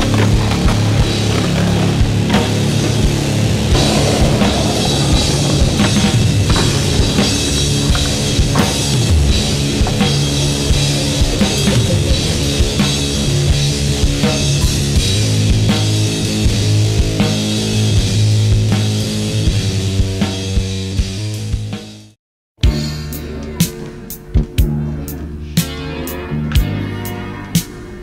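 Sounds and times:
rock music with drums and bass: 0.0s - 22.0s.

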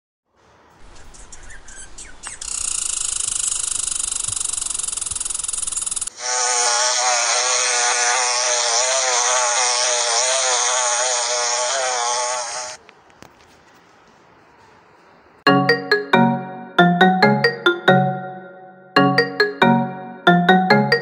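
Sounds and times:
high rapid buzzing rattle: 3.0s - 6.1s
wasp buzzing: 6.2s - 12.8s.

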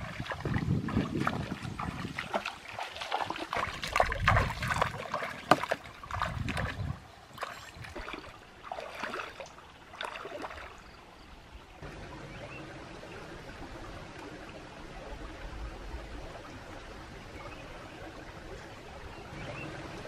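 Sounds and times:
splashing footsteps in water: 0.0s - 10.8s
stream trickling: 0.0s - 20.0s.

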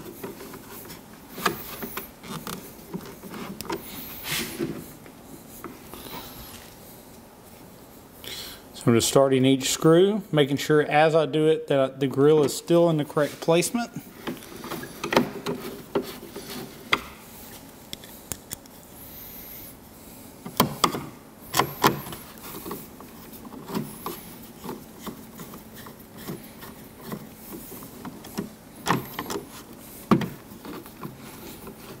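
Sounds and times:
plastic rubbing: 0.0s - 6.7s, 20.5s - 32.0s.

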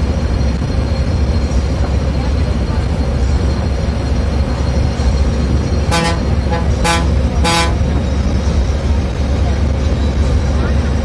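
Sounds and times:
bus engine drone: 0.0s - 11.0s
bus horn blasts: 5.8s - 8.0s.

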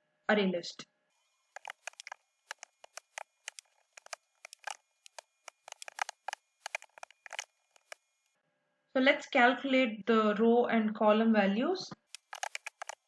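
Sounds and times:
keyboard typing: 1.5s - 8.0s, 12.0s - 13.0s.

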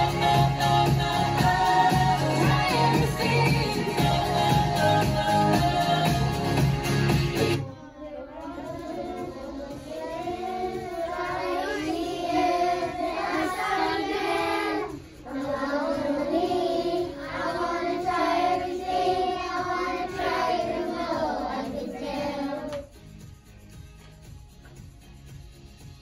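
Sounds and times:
young children singing: 0.0s - 6.6s, 7.6s - 22.9s.

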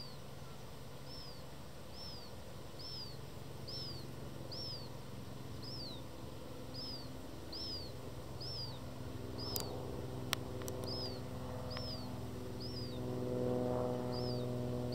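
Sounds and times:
low steady hum: 0.0s - 14.9s
gull chick begging call: 2.0s - 4.9s, 6.7s - 8.8s, 9.4s - 9.7s, 10.8s - 13.0s
sharp clicks: 9.4s - 9.7s, 10.3s - 11.1s.

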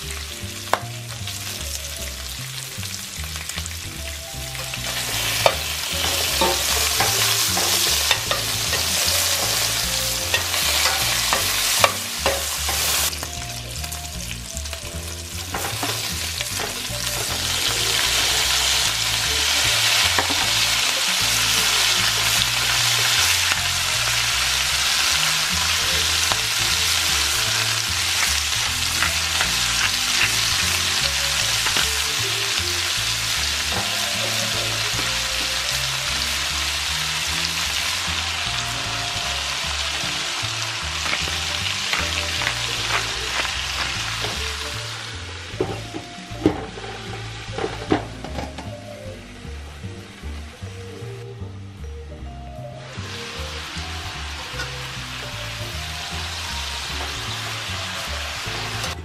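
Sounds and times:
bacon sizzling in a pan: 0.0s - 48.4s, 52.8s - 59.0s
metal spatula scraping a pan: 4.5s - 13.2s, 15.3s - 23.5s.

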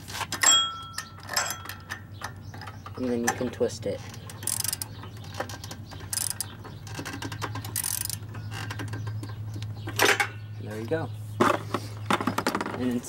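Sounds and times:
ratchet wrench clicking: 4.1s - 9.0s.

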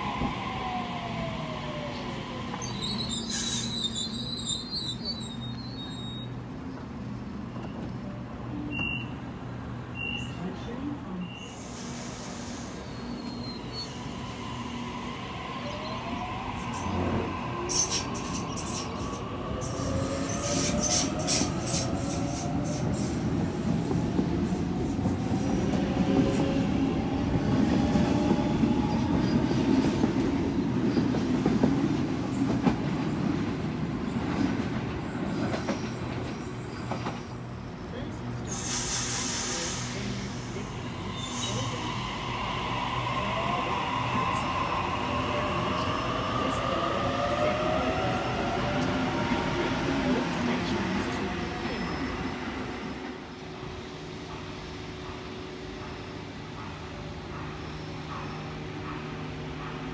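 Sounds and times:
train rumble: 5.2s - 59.9s.

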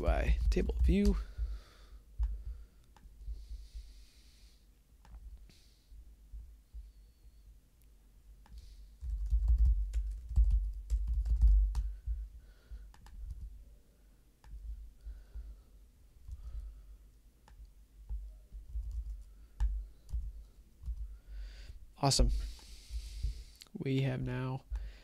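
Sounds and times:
computer keyboard typing: 0.2s - 1.2s, 9.0s - 12.0s, 12.9s - 13.5s, 17.6s - 21.1s.

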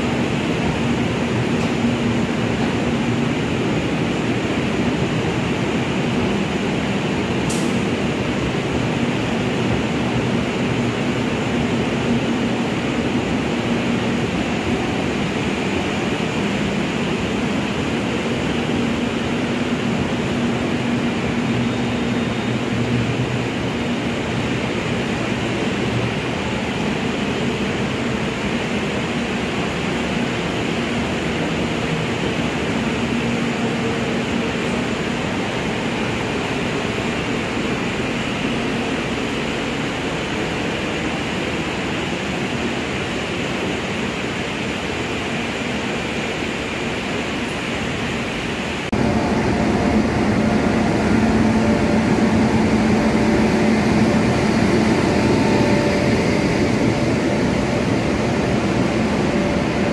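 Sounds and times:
train wheels rumbling on rail: 0.0s - 59.9s
low hum: 48.9s - 59.9s.

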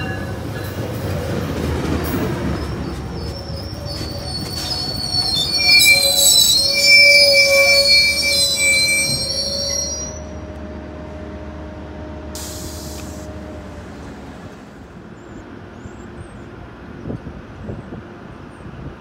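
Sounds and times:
train brakes squealing: 2.4s - 10.5s
short air hiss: 12.3s - 13.3s.

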